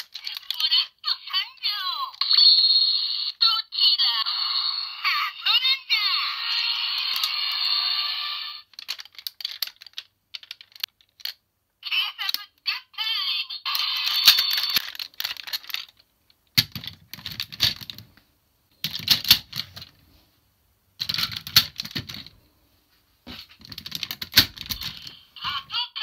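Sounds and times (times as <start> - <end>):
plastic toy parts clicking: 0.0 - 0.8, 7.0 - 7.5, 8.6 - 11.4, 13.7 - 18.1, 18.8 - 19.9, 21.0 - 22.4, 23.6 - 25.2.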